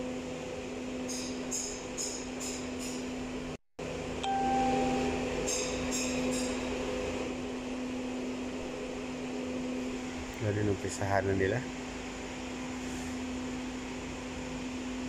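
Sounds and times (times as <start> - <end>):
steady machine hum: 3.1 - 15.0
brief high tone: 4.2 - 5.6.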